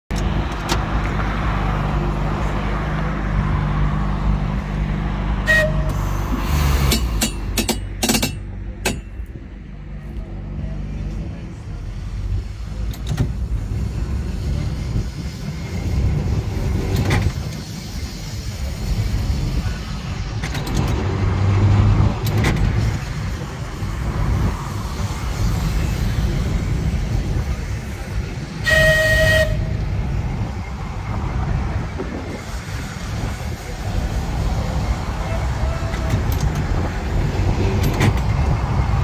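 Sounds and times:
tram running hum: 0.1 - 39.0
clicks and knocks from wheels: 22.1 - 23.1, 37.7 - 38.6.

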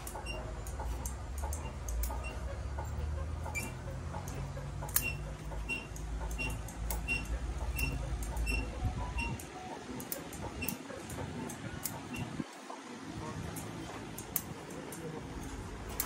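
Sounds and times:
scissors snipping leaves: 0.0 - 8.4, 9.9 - 12.3, 13.5 - 16.0
low steady rumble: 0.0 - 9.7.

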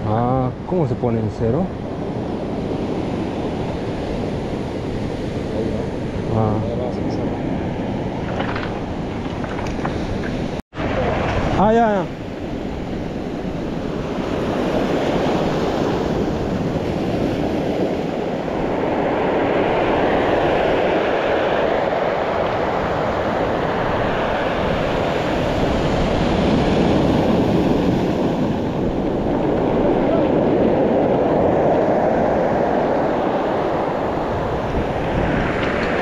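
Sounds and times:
surf washing up a cobble beach: 0.0 - 36.0.

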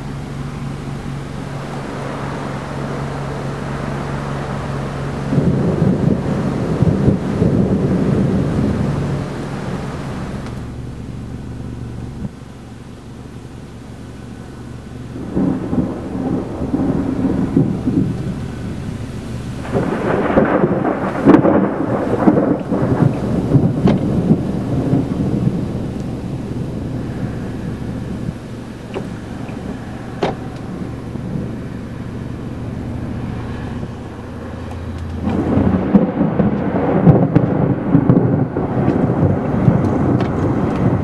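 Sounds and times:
rolling thunder: 0.0 - 10.7, 15.1 - 41.0
sharp thunder cracks: 15.2 - 18.3, 19.6 - 26.9, 33.4 - 41.0.

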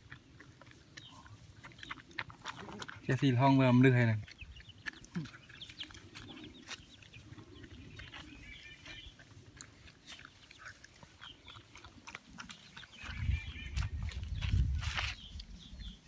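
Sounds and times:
beaks pecking at feed: 0.0 - 16.0
chicks peeping: 3.2 - 16.0
chickens clucking: 4.2 - 14.6.

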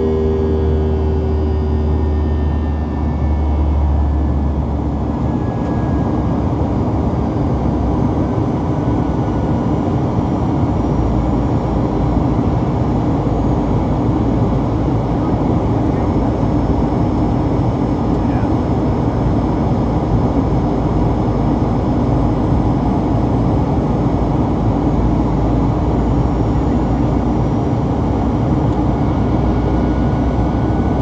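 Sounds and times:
airplane cabin engine noise: 0.0 - 31.0.

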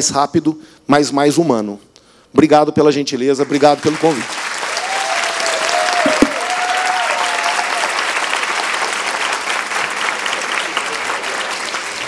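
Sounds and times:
audience applauding: 3.4 - 12.0.

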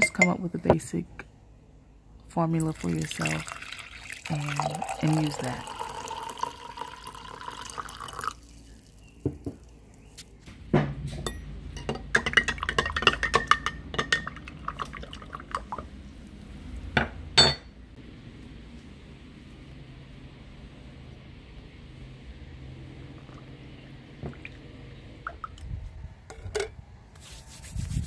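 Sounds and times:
liquid pouring into glass jar: 2.7 - 9.1, 12.1 - 15.8
spoon stirring and clinking glass: 11.2 - 14.5.

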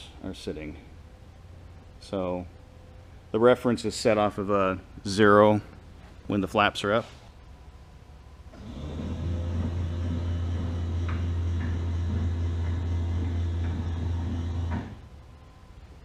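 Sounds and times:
electric motor humming: 8.6 - 15.0.

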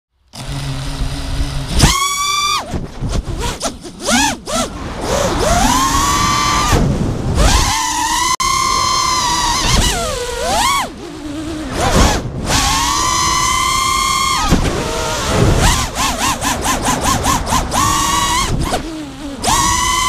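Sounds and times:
drone motors whining: 0.2 - 20.0
wind rumble on microphone: 4.7 - 20.0.

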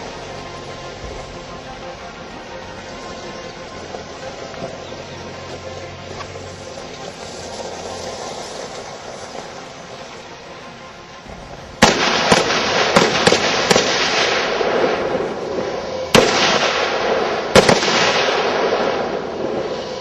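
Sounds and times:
rifle shots with rolling echo: 11.3 - 20.0.

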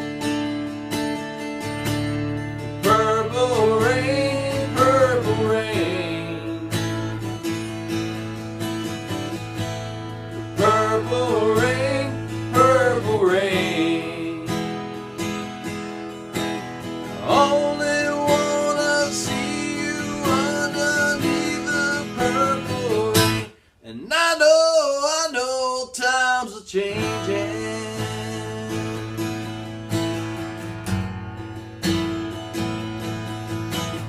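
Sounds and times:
acoustic guitar strumming: 0.0 - 23.7, 24.5 - 34.0
man singing wordless melody: 2.8 - 7.1, 10.5 - 14.8, 17.1 - 29.1.

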